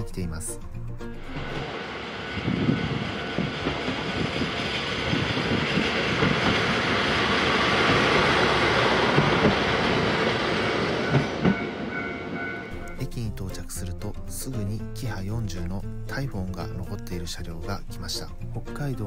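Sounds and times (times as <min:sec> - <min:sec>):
diesel railcar engine: 0:00.3 - 0:14.2
train wheels clattering over rail joints: 0:02.5 - 0:12.7.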